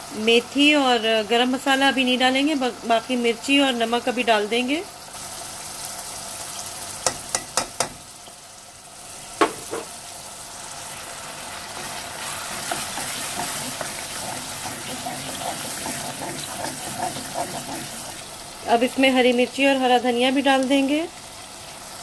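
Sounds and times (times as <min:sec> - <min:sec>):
masala sizzling in hot oil: 0:00.0 - 0:22.0
metal spoon tapping a pot: 0:07.0 - 0:08.0.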